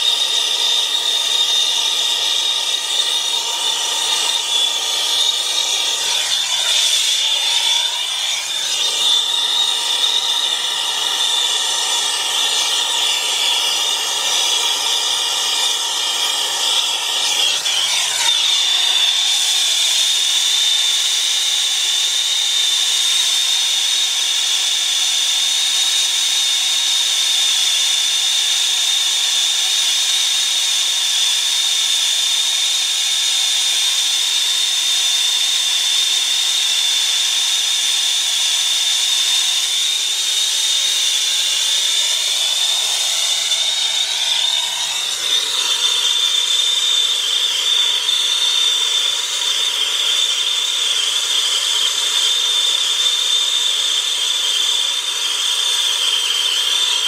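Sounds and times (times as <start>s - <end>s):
brazing torch hissing: 0.0s - 21.4s, 37.3s - 55.3s.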